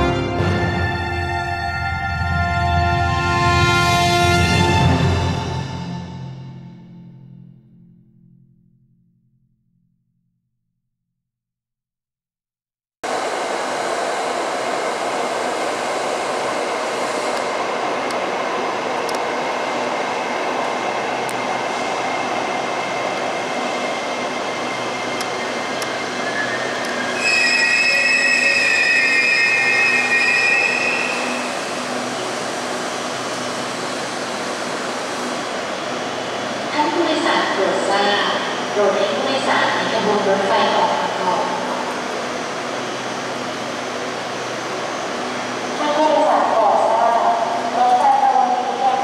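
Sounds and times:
train rolling: 0:13.0 - 0:49.0
train standing hum: 0:13.0 - 0:49.0
high-pitched brake squeal: 0:25.4 - 0:32.2.

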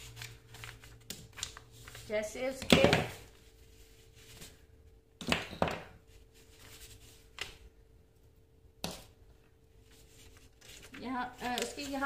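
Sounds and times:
paper rustling: 0:00.0 - 0:02.3, 0:06.1 - 0:07.7, 0:09.8 - 0:12.0.

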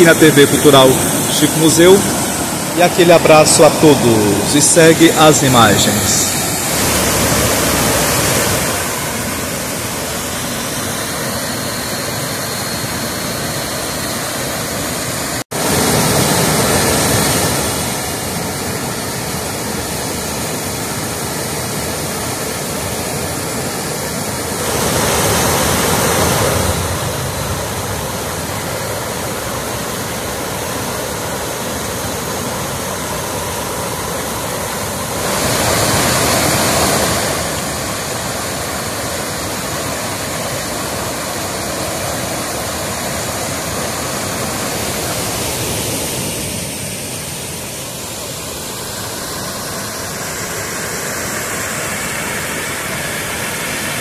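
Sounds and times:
waterfall and rapids rushing: 0:00.0 - 0:54.0.

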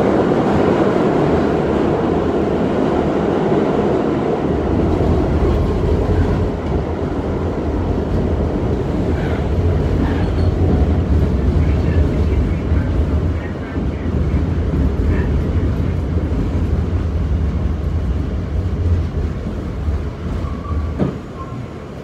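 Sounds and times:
subway train wheels rumbling: 0:00.0 - 0:22.0.

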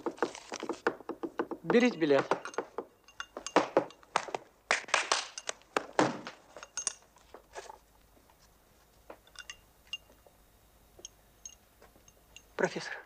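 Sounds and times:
faint glass clinks: 0:02.4 - 0:04.0, 0:06.5 - 0:07.0, 0:09.3 - 0:10.3, 0:11.0 - 0:12.7.

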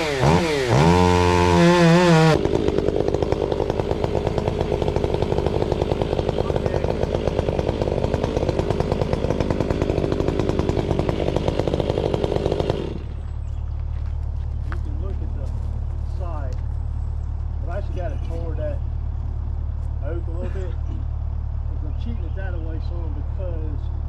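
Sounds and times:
chainsaw cutting a tree trunk: 0:00.0 - 0:13.4.

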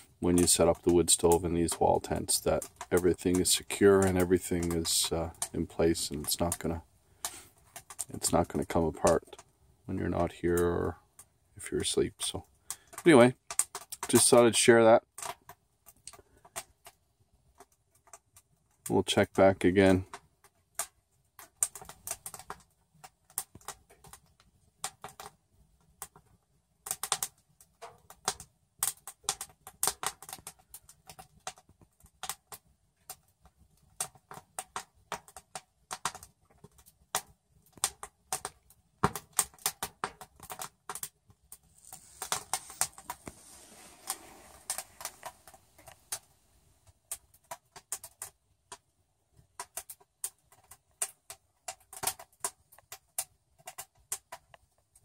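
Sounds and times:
wood fire crackling in metal stove: 0:00.0 - 0:55.0
soft hiss: 0:41.6 - 0:46.8.

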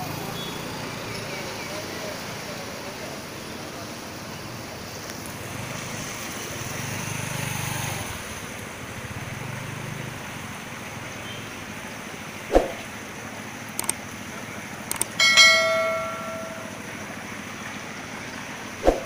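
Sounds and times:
rushing water: 0:00.0 - 0:19.0
motor scooter engine hum: 0:05.2 - 0:18.8.

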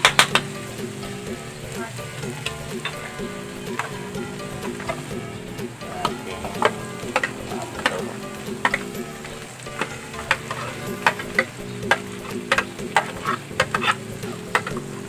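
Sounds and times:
faint frying sizzle: 0:00.0 - 0:15.0
metal spoon scraping and tapping: 0:08.6 - 0:15.0.

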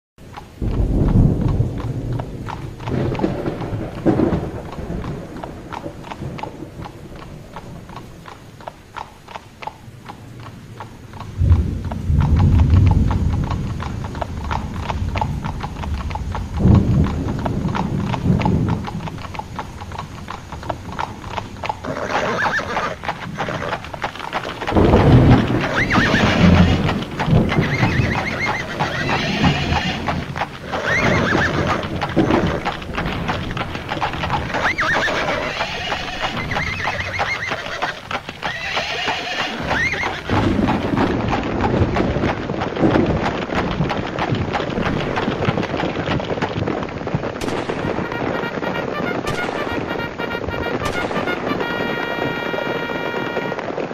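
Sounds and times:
hoofbeats: 0:00.2 - 0:53.9
thunder rolling: 0:00.5 - 0:08.6, 0:09.8 - 0:53.9
horses whinnying: 0:17.0 - 0:46.4.

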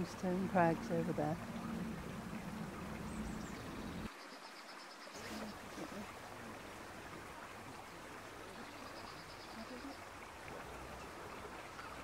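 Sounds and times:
hiss of moving water: 0:05.1 - 0:10.8.

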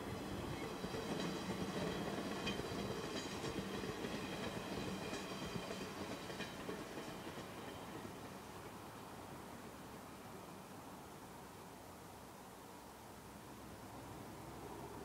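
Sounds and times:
wheels clicking over rail joints: 0:00.0 - 0:09.1
train rumble and hum: 0:00.0 - 0:10.2.

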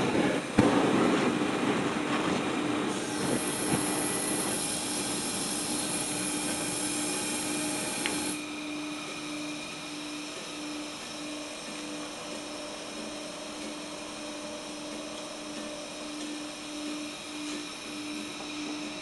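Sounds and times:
gas burners roaring: 0:00.0 - 0:19.0
higher hiss: 0:02.9 - 0:08.7.

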